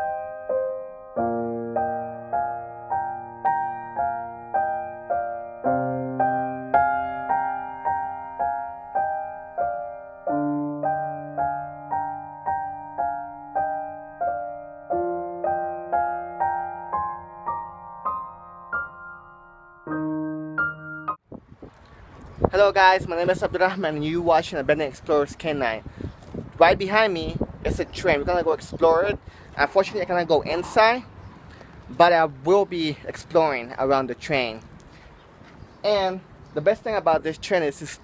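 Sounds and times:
gentle solo piano music: 0.0 - 21.2.

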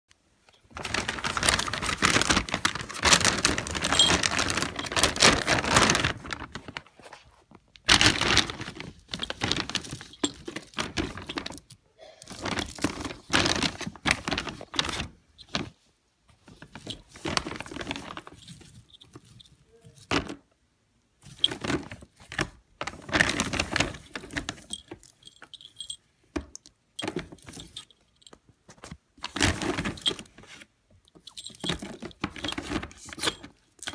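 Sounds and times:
plastic bag crinkling: 0.5 - 15.8, 16.5 - 20.3, 21.2 - 26.0, 27.0 - 33.9
pellets rattling: 0.6 - 6.9, 7.8 - 15.7, 16.6 - 20.3, 22.8 - 26.0, 27.0 - 28.3, 29.2 - 30.4, 31.2 - 33.9.

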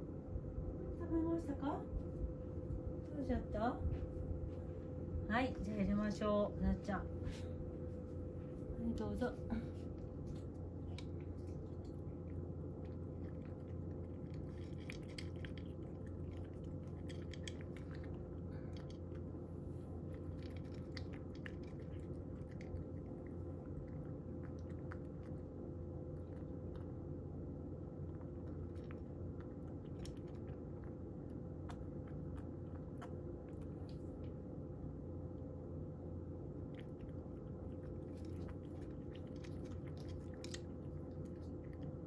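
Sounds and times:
steady low hum: 0.0 - 42.0
cat crunching dry kibble: 9.8 - 27.0, 27.8 - 34.4, 36.6 - 42.0.

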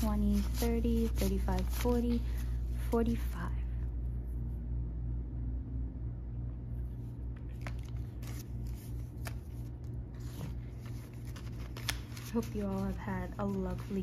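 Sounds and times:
banknotes rustling: 0.0 - 3.4, 7.4 - 14.0
steady low hum: 0.0 - 14.0.

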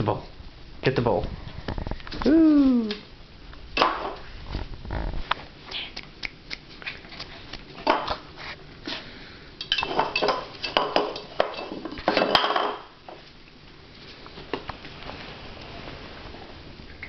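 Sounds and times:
water dish clattering on floor: 9.6 - 12.9.

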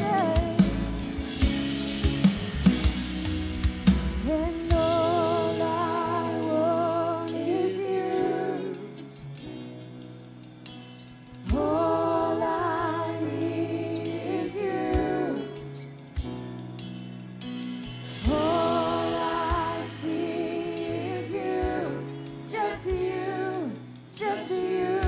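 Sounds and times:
person singing with vibrato: 0.0 - 1.1, 4.2 - 9.2, 11.5 - 15.8, 18.2 - 25.0
bass guitar: 0.0 - 25.0
drums: 0.0 - 25.0
keyboard: 0.0 - 25.0.

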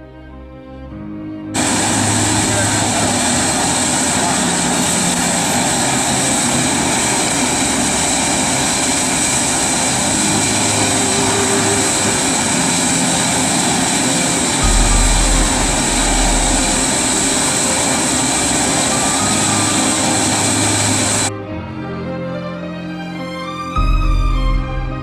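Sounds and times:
pellet burner flame rushing: 1.6 - 21.3
low rumble: 6.8 - 21.3.

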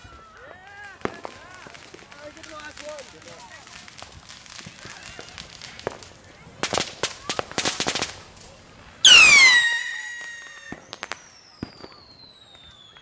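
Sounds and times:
firework cracks and pops: 0.0 - 13.0
loud descending whistle: 9.1 - 11.0
faint sliding whistle: 9.1 - 13.0.

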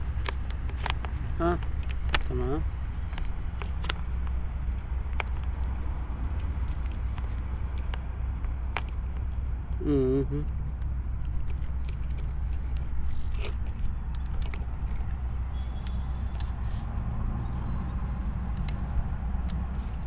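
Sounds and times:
low background rumble: 0.0 - 20.0
light clicks and taps: 2.9 - 9.4.

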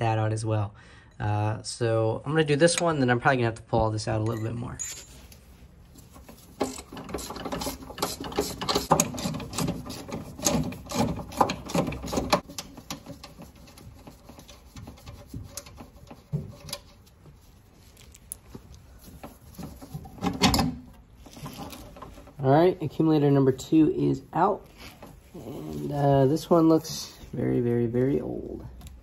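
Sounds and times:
metal rattle: 6.0 - 17.1, 19.0 - 22.5
hand tools clicking and knocking: 6.1 - 17.0.

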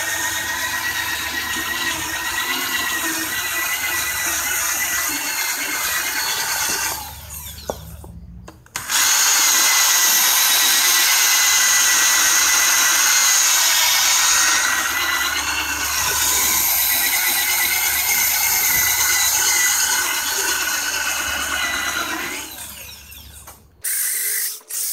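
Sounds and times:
cordless drill motor whine: 0.0 - 8.0, 8.8 - 24.9.

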